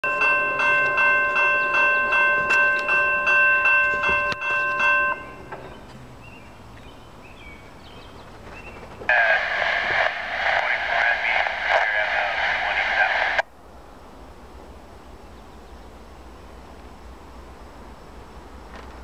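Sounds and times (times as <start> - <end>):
crossing warning bell ringing: 0.0 - 6.0.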